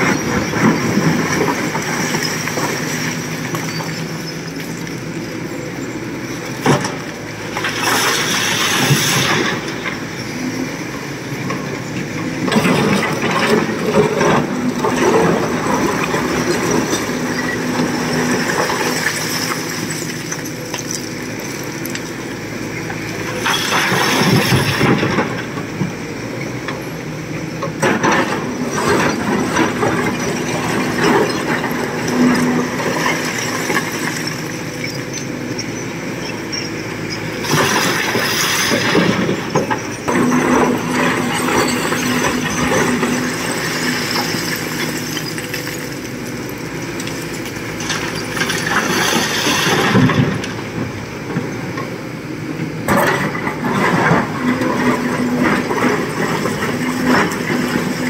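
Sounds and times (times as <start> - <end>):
excavator diesel engine: 0.0 - 58.0
rock scraping and clattering: 37.4 - 50.4.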